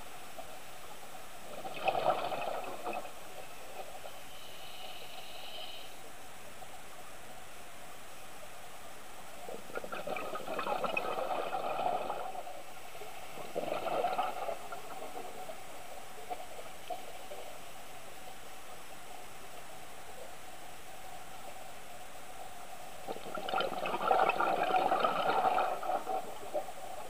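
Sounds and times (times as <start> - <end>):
underwater regulator hiss: 4.3 - 6.0
exhaust bubbles bursting: 9.8 - 12.3, 13.5 - 15.1, 23.1 - 26.4.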